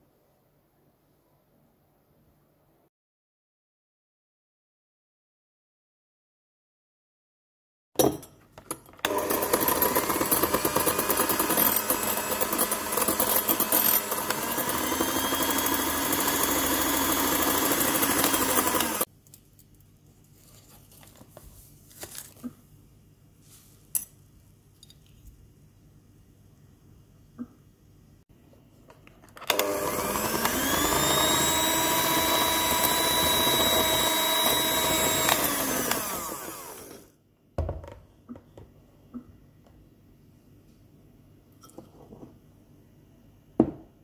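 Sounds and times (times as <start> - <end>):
hand mixer beating: 9.0 - 19.1, 29.5 - 37.1.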